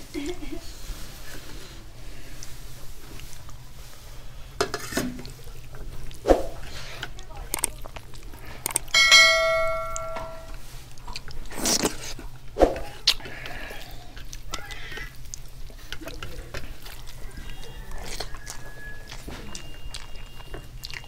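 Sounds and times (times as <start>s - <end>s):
hand mixing food squishes: 0.4s - 9.3s, 10.5s - 21.0s
bell chime: 9.0s - 10.5s.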